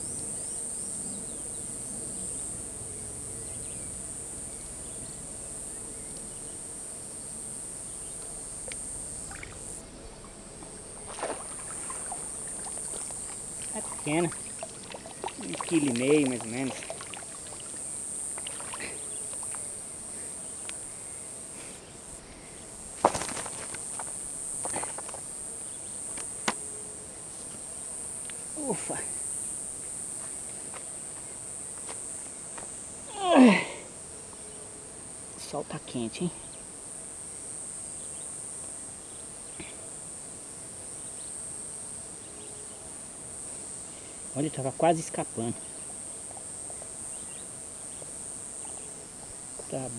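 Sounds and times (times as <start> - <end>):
insects buzzing: 0.0 - 49.9
water dripping from net: 11.0 - 17.8.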